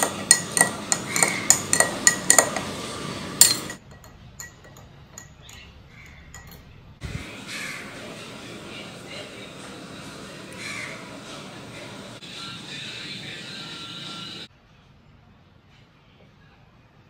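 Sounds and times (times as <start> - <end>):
metal spoon clinking in glass: 0.0 - 2.8, 3.4 - 6.8.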